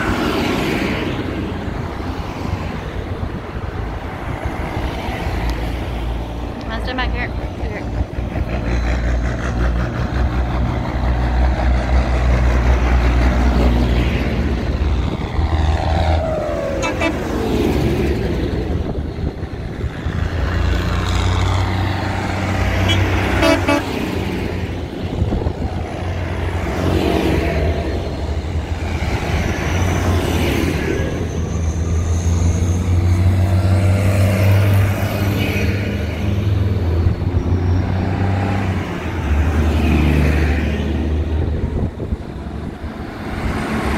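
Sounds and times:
tractors driving past: 0.0 - 43.9
horn toots: 16.7 - 17.8, 22.8 - 24.1.

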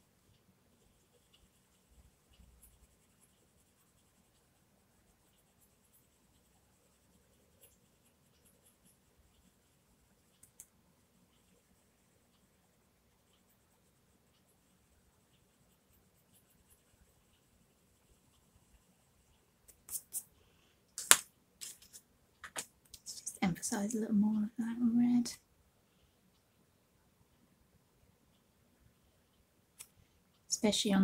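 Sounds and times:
soft ticks: 0.2 - 3.0, 10.2 - 19.8, 28.3 - 30.8
coloured pencil scratching on paper: 0.7 - 10.6, 13.2 - 20.3.

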